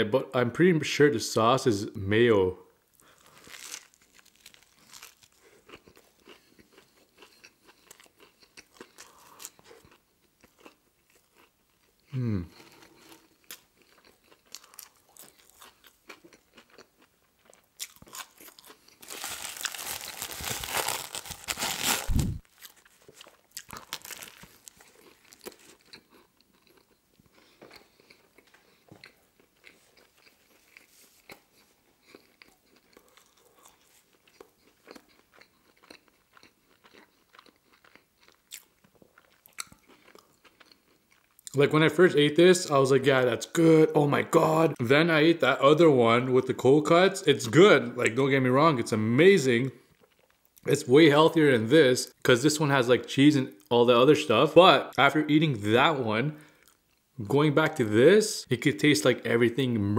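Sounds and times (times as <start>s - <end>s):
crunchy sandwich bite: 3.0s - 11.5s, 17.5s - 28.2s
chewing: 3.0s - 20.3s, 22.6s - 41.6s.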